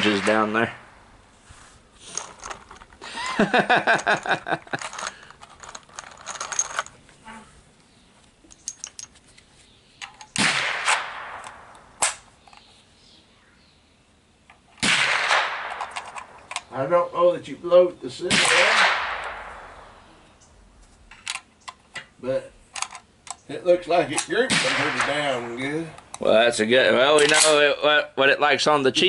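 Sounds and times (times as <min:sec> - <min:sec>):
gunshots: 0:00.0 - 0:01.0, 0:10.4 - 0:12.2, 0:14.8 - 0:15.9, 0:18.3 - 0:19.9, 0:24.4 - 0:25.8
gun handling clicks: 0:03.9 - 0:07.0, 0:08.2 - 0:12.8, 0:14.5 - 0:16.7, 0:21.1 - 0:22.1, 0:22.7 - 0:23.5.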